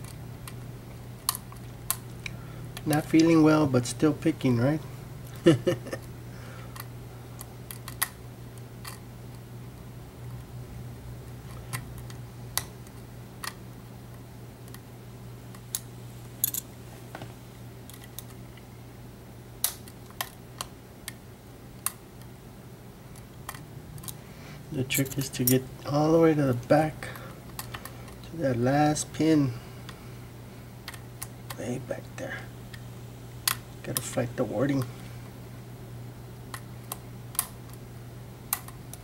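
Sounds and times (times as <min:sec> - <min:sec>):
steady low hum: 0:00.0 - 0:39.0
small metallic lock pick clicks: 0:06.8 - 0:08.2, 0:36.5 - 0:37.8.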